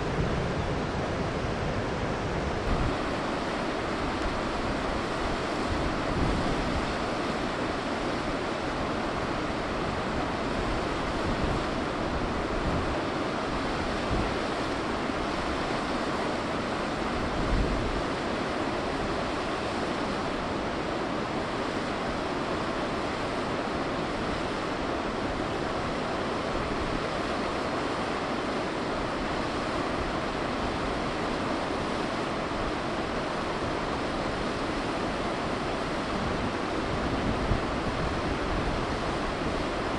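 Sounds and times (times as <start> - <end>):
wind buffeting microphone: 0.0 - 15.6, 32.6 - 39.9
stream water flowing: 0.0 - 39.9.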